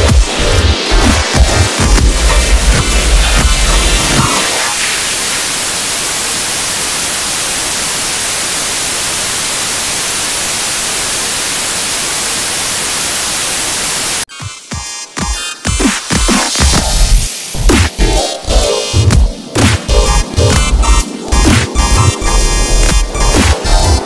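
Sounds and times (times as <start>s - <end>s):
bass-heavy electronic music: 0.0s - 5.2s, 14.3s - 24.0s
television static hiss: 3.6s - 14.3s.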